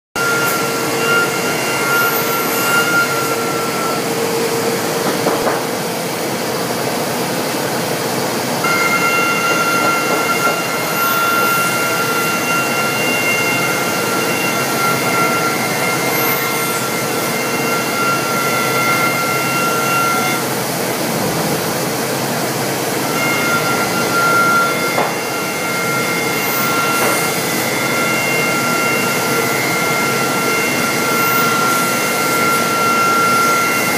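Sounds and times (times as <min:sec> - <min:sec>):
high machine whine: 0:00.2 - 0:33.9.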